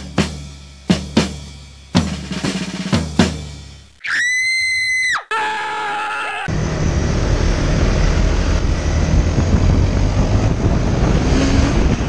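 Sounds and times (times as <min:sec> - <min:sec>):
kick and snare drum beat: 0:00.0 - 0:03.8.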